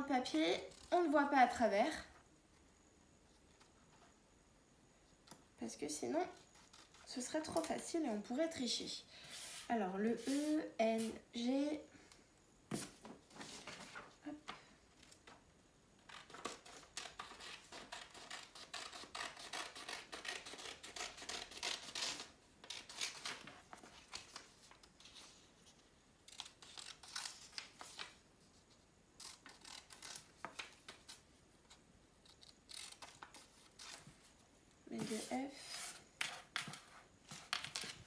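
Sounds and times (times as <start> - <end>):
scissors cutting paper: 29.2 - 30.6, 32.3 - 34.0.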